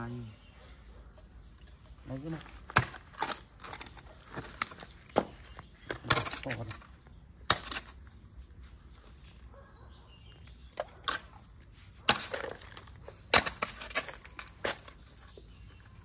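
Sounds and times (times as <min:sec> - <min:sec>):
sharp knocks and cracks: 0:02.5 - 0:08.0, 0:12.1 - 0:15.3.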